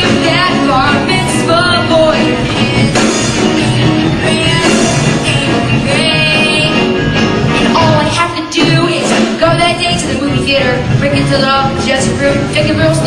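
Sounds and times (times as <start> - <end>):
young cast singing: 0.0 - 7.0
rock-style accompaniment: 0.0 - 13.0.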